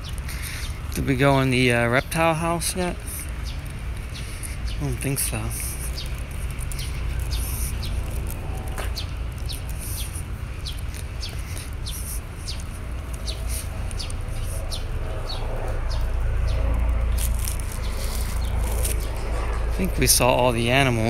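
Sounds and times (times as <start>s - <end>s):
bird chirping: 0.0s - 21.0s
low rumble: 12.8s - 21.0s.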